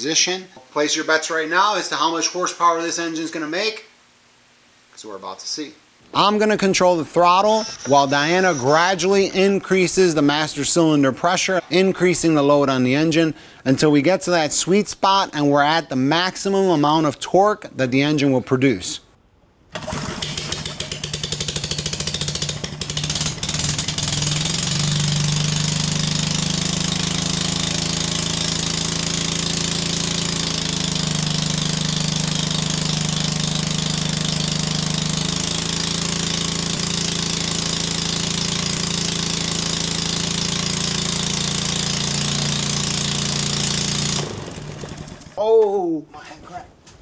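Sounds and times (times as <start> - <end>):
small engine running under load: 19.7 - 45.4.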